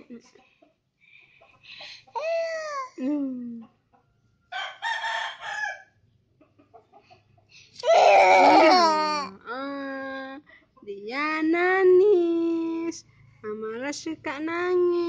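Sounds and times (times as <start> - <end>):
rooster crowing: 4.5 - 6.0.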